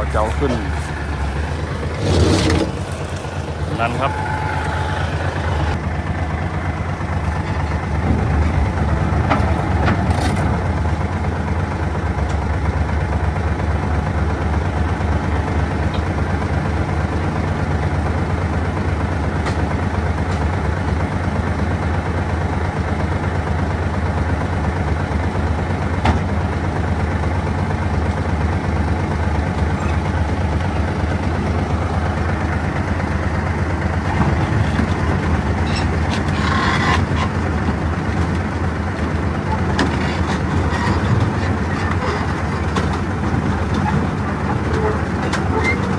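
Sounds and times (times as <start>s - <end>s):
truck engine running: 0.0s - 45.9s.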